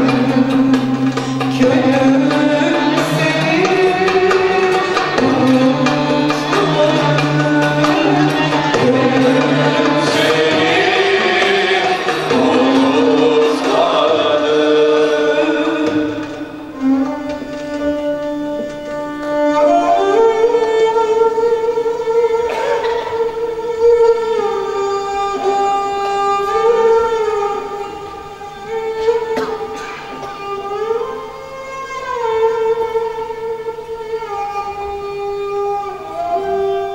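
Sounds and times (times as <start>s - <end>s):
woman singing: 0.0s - 16.1s
light percussion: 0.0s - 36.9s
violins playing: 0.0s - 36.9s.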